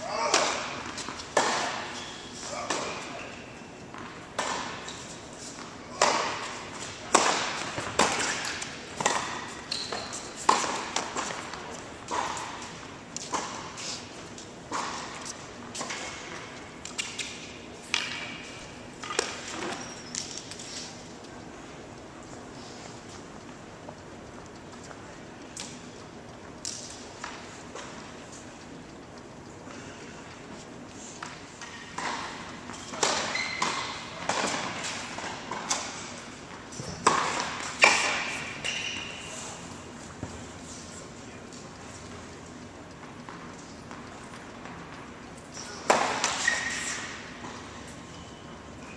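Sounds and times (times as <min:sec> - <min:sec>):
tennis balls striking and bouncing: 0:00.0 - 0:03.2, 0:03.8 - 0:21.9, 0:30.6 - 0:39.0, 0:41.9 - 0:48.0.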